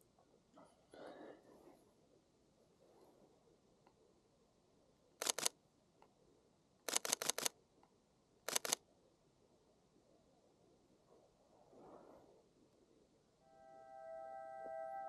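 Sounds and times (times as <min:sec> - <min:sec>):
camera shutter clicks: 0:05.2 - 0:05.5, 0:06.9 - 0:07.5, 0:08.5 - 0:08.8.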